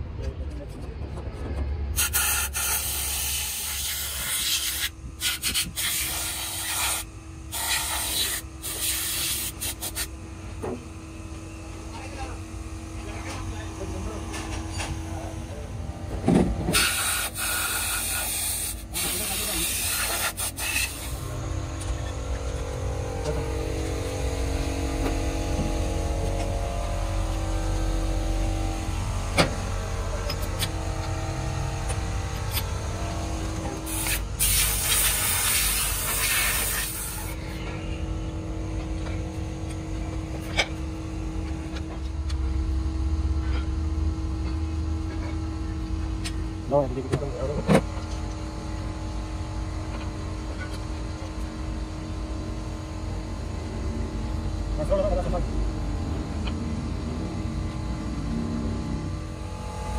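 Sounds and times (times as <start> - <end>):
low machine hum and rumble: 0.0 - 59.9
loud hissing bursts: 2.0 - 10.1, 16.7 - 21.4, 33.9 - 37.4.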